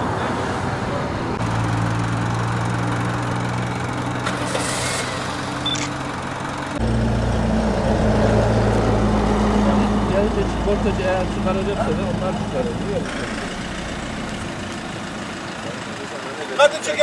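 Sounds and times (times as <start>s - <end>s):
vehicle engine idling: 1.0s - 17.0s
diesel engine deep idle: 1.4s - 7.9s, 8.5s - 17.0s.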